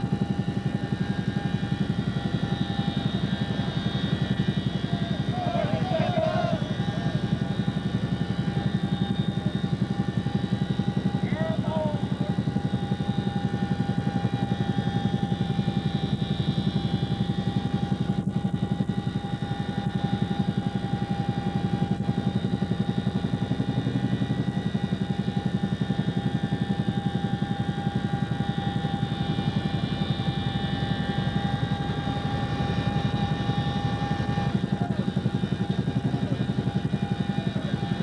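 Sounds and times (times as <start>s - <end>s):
helicopter rotors beating: 0.0s - 38.0s
high transmission whine: 0.0s - 38.0s.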